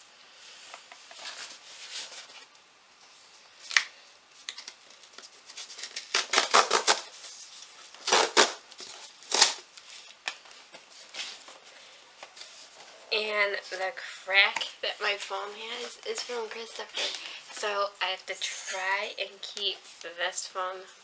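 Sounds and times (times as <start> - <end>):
cardboard box tearing: 9.3 - 9.6.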